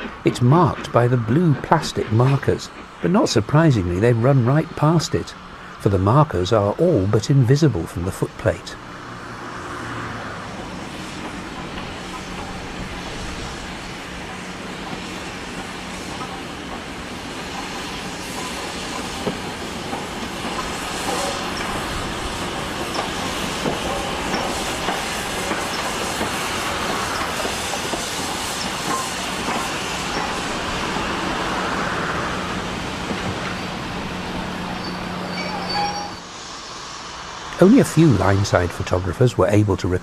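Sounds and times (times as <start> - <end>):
train wheels clicking over rails: 0.0 - 7.2, 10.4 - 39.0
high wheel squeals: 34.6 - 36.3.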